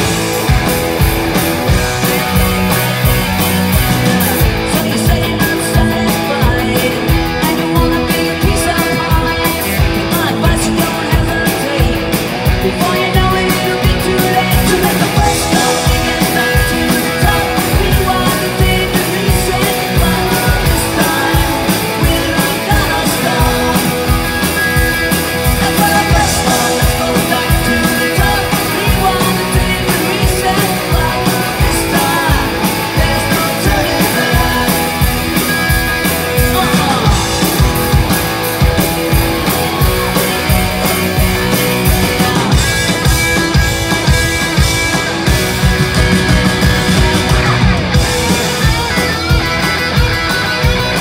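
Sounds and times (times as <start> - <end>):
drum kit beat: 0.0 - 51.0
electric guitars: 0.0 - 51.0
woman singing: 4.7 - 12.0.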